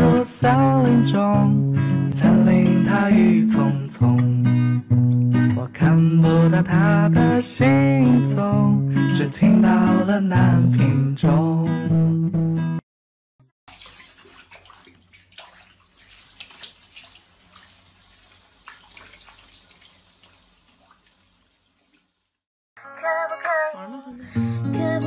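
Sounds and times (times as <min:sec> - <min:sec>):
strummed guitar music: 0:00.0 - 0:12.8, 0:24.2 - 0:25.0
running water splashing: 0:13.7 - 0:22.4.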